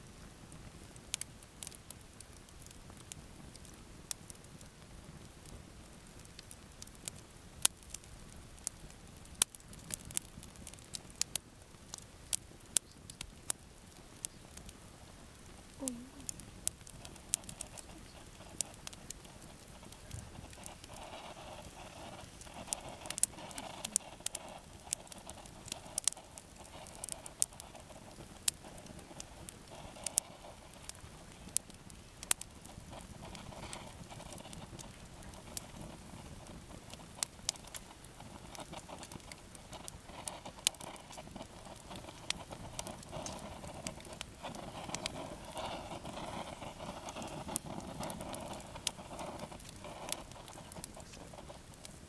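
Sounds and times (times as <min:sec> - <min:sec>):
burning wood popping: 0:00.0 - 0:52.0
campfire crackling: 0:00.0 - 0:52.0.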